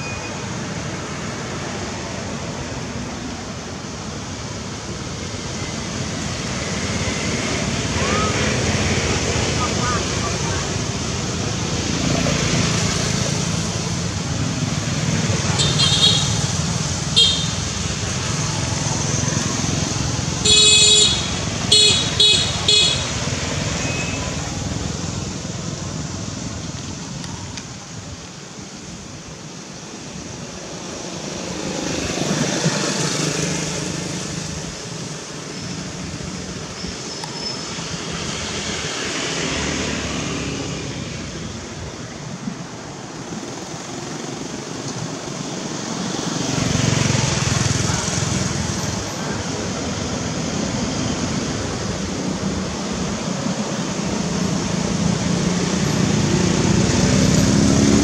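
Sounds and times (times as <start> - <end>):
road traffic noise: 0.0 - 58.0
vehicle horn tooting: 15.6 - 16.4, 17.2 - 17.6, 20.4 - 23.2
vehicle passing: 54.1 - 58.0.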